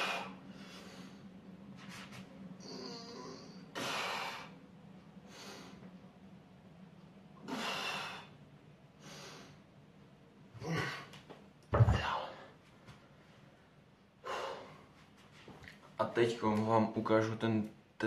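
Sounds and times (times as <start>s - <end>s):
man breathing hard: 0.0s - 1.4s, 2.6s - 4.6s, 7.4s - 8.4s, 14.2s - 15.1s
dumbbells thudding down: 11.7s - 12.2s.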